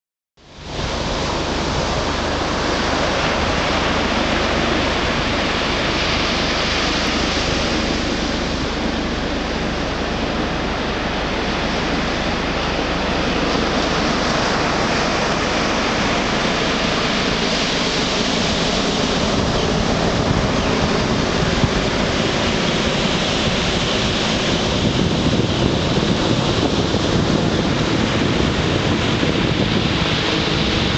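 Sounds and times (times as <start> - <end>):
surf breaking on beach: 0.5 - 30.9.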